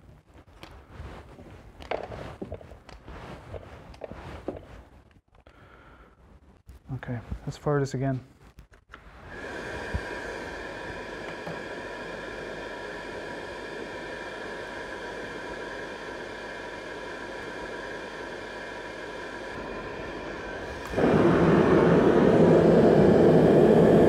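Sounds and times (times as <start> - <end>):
oil burner motor whining: 9.3 - 24.0
burner flame roar: 18.3 - 24.0.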